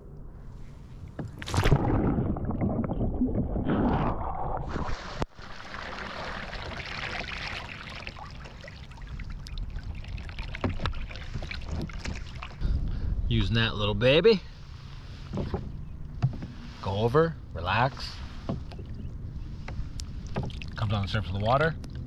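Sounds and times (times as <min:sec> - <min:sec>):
water splashing and dripping: 0:01.2 - 0:03.6, 0:04.5 - 0:12.6, 0:19.6 - 0:21.2
kayak splash: 0:01.2 - 0:12.6, 0:17.8 - 0:20.9
loud churning water: 0:01.4 - 0:12.7.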